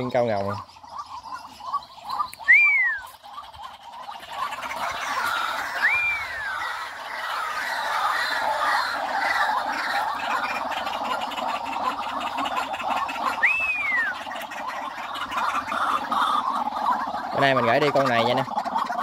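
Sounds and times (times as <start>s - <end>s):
caged birds calling: 0.0s - 19.0s
rising and falling whistle: 2.4s - 3.1s, 5.8s - 6.7s, 13.4s - 14.2s.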